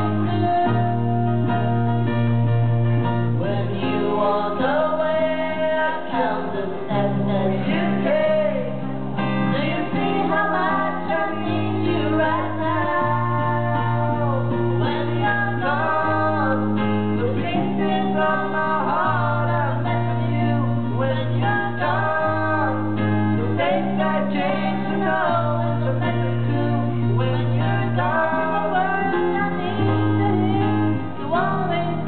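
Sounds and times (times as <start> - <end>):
woman and man singing: 0.0 - 2.1, 3.4 - 32.0
acoustic guitar: 0.0 - 32.0
electric bass: 0.0 - 32.0.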